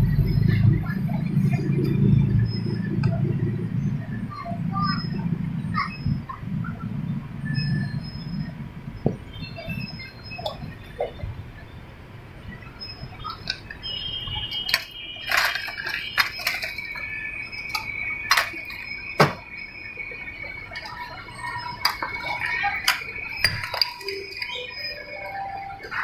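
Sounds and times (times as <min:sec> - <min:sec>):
plastic cups and ice clinking: 0:13.1 - 0:20.0, 0:20.6 - 0:26.0.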